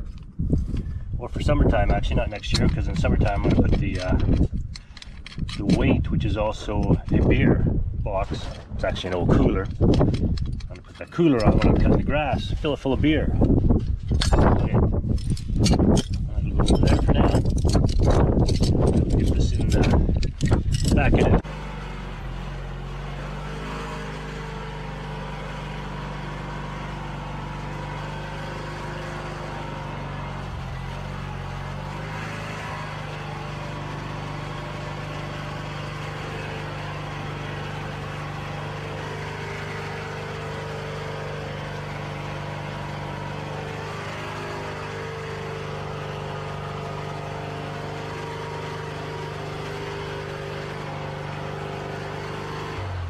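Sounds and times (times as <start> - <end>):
garden tractor engine running: 0.0 - 53.0.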